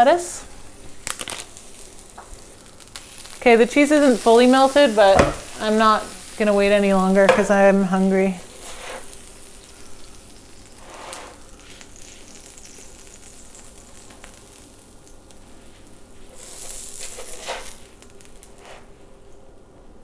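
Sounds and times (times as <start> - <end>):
patties sizzling on griddle: 0.5 - 19.1
plastic spatula scraping: 16.5 - 17.8.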